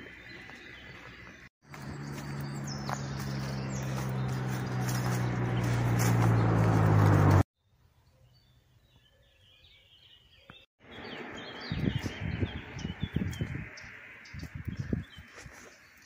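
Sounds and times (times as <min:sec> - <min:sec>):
horse hooves thudding on dirt: 0:00.0 - 0:07.4
small birds chirping: 0:00.0 - 0:16.0.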